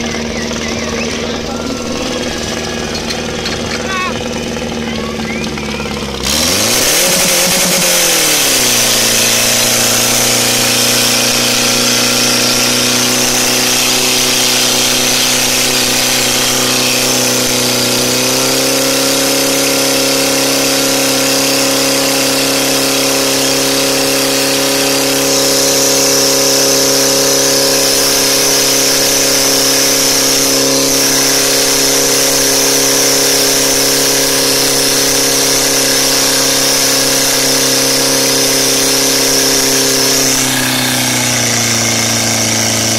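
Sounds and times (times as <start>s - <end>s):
pump engine running hard: 0.0s - 42.9s.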